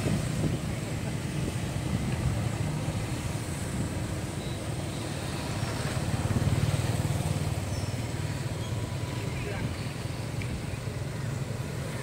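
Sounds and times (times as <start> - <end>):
motorbike engine passing: 4.6 - 12.0.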